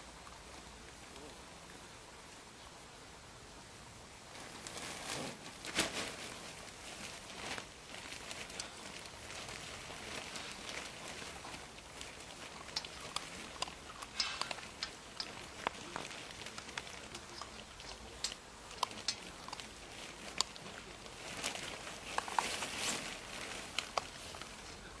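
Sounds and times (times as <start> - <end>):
puppies eating: 7.0 - 25.0.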